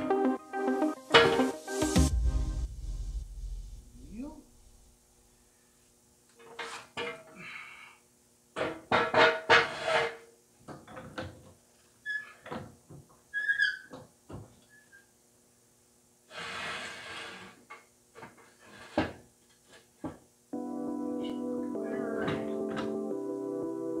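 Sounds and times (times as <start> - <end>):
rushing noise: 0.8 - 5.0.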